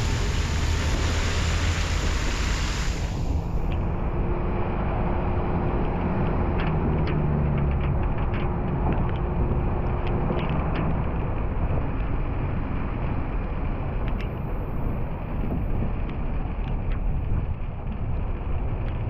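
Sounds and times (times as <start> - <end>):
steady hum: 0.0 - 4.2
car engine and tyre rumble: 0.0 - 19.0.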